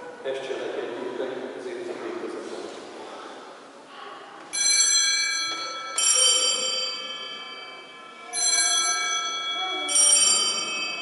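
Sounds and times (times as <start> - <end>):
altar bells ringing: 4.5 - 11.0.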